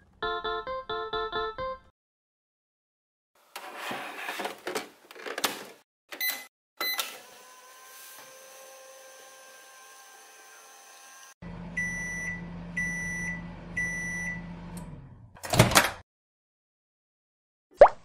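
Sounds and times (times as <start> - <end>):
plastic door click and rattle: 15.4 - 16.0.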